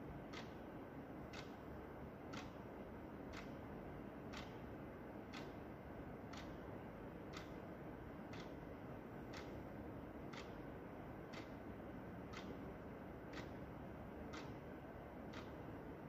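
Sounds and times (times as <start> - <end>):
clock ticking: 0.3 - 0.6, 1.3 - 1.6, 2.3 - 2.6, 3.3 - 3.6, 4.3 - 4.7, 5.3 - 5.6, 6.3 - 6.7, 7.3 - 7.6, 8.3 - 15.9.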